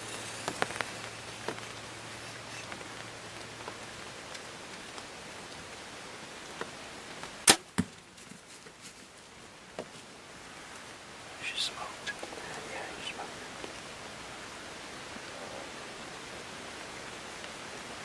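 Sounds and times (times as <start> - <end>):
low steady hiss: 0.0 - 18.0
bow firing crack: 7.4 - 8.0
arrow striking smack: 7.5 - 8.0.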